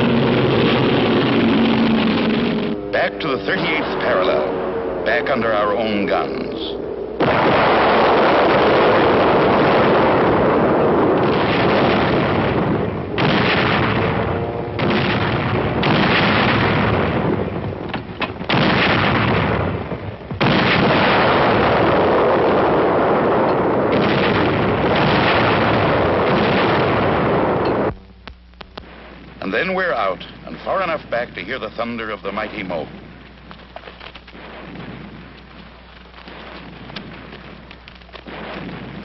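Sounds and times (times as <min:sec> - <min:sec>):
rocket launches roaring: 0:00.0 - 0:27.9
rocket blasts: 0:00.0 - 0:28.0, 0:28.8 - 0:39.0.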